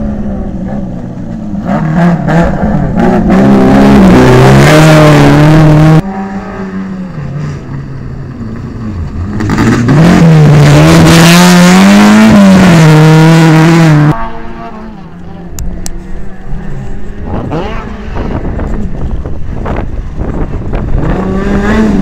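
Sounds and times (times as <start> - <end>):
rally car engine at high revs: 0.0 - 22.0.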